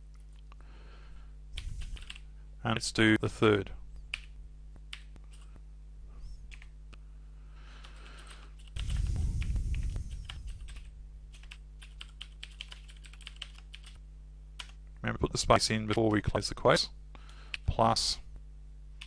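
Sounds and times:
steady low hum: 0.0s - 19.0s
loud rushing noise: 8.8s - 10.7s
keyboard keys clicking: 10.2s - 14.0s.

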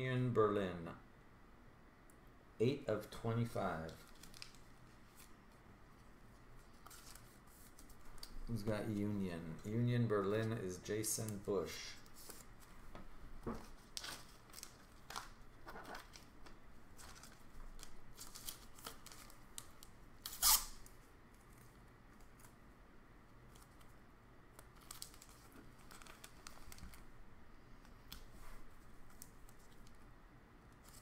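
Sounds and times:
plastic sleeves crinkling and scraping: 3.7s - 8.9s, 11.2s - 22.6s, 23.4s - 27.1s.

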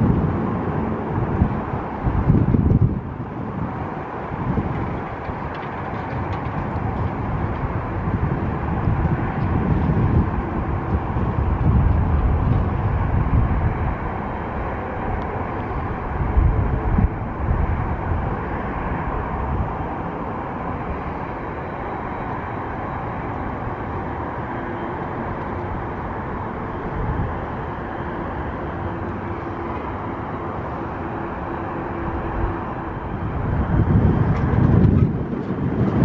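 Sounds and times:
uneven low rumbling: 0.0s - 21.4s
distant jet engines: 0.0s - 36.0s.

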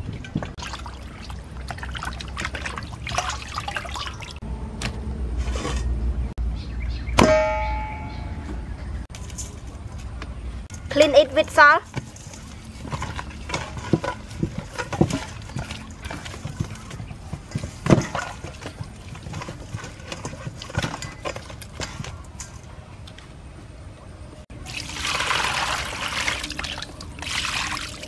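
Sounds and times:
water pouring: 0.0s - 4.4s, 24.6s - 28.0s.

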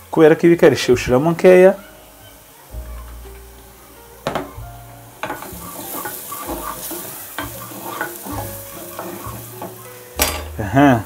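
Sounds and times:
onions sizzling in oil: 0.0s - 11.0s
wooden spoon scraping a pan: 5.2s - 10.5s.

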